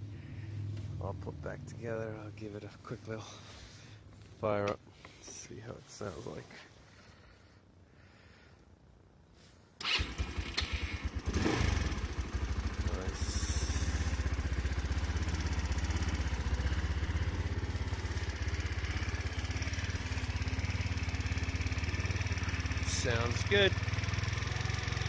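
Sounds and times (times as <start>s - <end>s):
scooter engine starting and idling: 9.8s - 25.0s.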